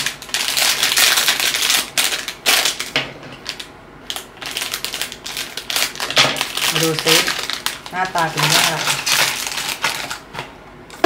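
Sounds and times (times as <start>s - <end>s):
foil bag crinkling: 0.0s - 10.5s
scissors cutting foil: 4.4s - 10.2s.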